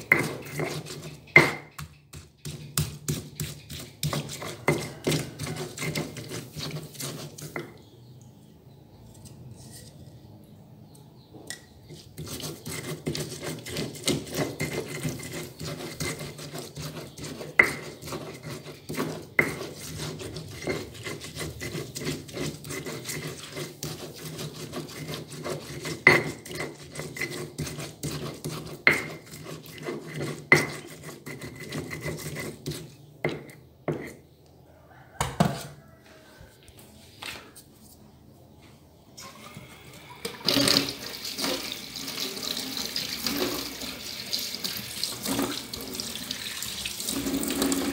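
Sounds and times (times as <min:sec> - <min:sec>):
stone pestle grinding on stone: 0:00.0 - 0:07.8, 0:11.8 - 0:34.2
water tap running: 0:39.2 - 0:47.9.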